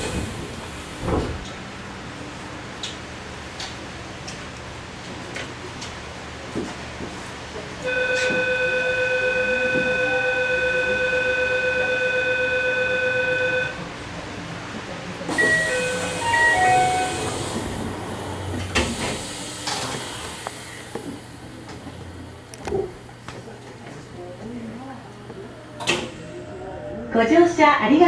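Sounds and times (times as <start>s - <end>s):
train doors thumping shut: 0.0s - 1.6s, 15.3s - 21.3s
chime notes: 16.2s - 17.2s.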